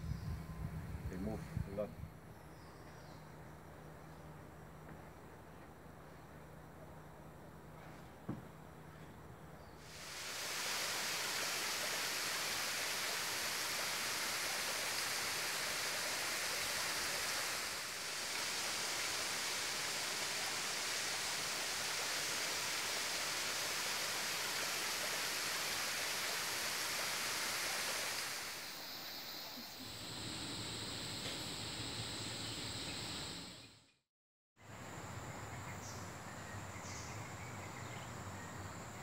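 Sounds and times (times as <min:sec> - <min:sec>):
waterfall rushing: 0:09.9 - 0:29.0.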